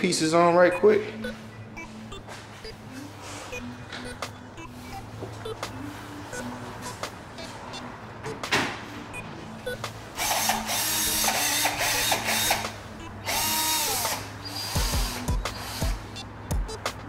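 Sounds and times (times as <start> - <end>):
cordless drill motor whining: 13.2 - 16.0.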